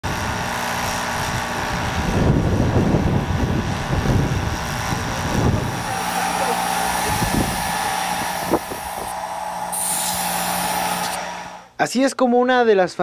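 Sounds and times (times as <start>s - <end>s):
paint spray gun hissing: 5.5s - 11.7s.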